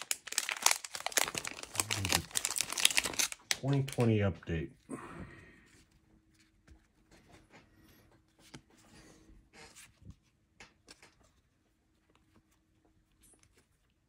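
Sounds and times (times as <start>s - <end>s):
trading cards rustling: 0.0s - 4.2s.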